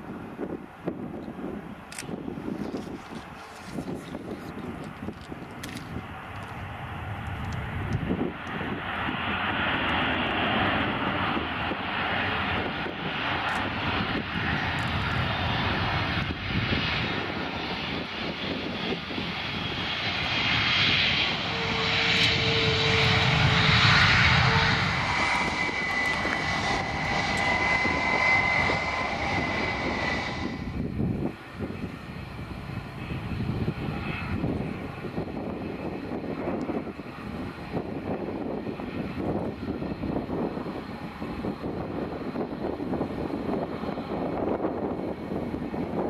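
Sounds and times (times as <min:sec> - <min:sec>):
jet engines rushing: 0:00.0 - 0:46.0.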